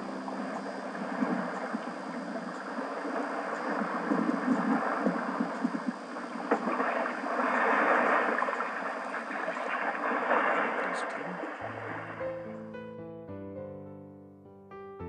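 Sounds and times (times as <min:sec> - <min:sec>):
piano music: 0:00.0 - 0:04.1, 0:11.6 - 0:15.0
water rushing along a boat hull: 0:00.0 - 0:12.2.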